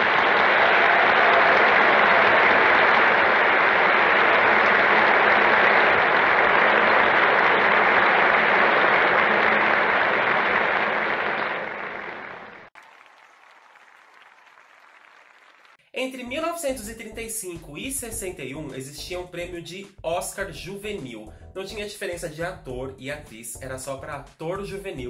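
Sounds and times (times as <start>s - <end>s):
audience applauding: 0.0s - 15.8s.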